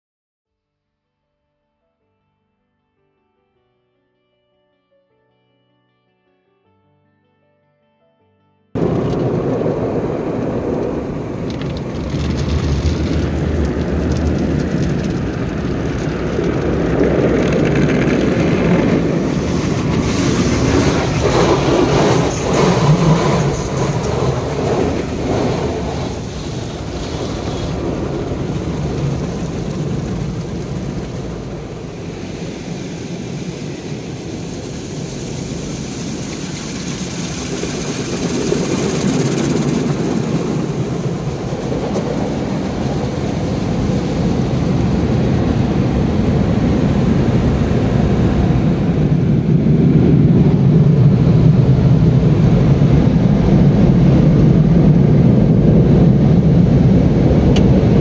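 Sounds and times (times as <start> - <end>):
car wash machinery rumbling: 8.8 - 58.0
water jets spraying on car: 18.2 - 48.2.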